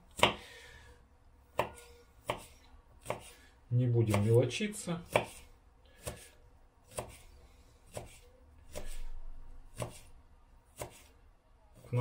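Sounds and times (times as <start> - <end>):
knife chopping on wooden board: 0.1 - 0.5, 1.5 - 3.4, 4.1 - 4.4, 5.0 - 7.3, 7.9 - 9.1, 9.7 - 10.1, 10.7 - 11.1.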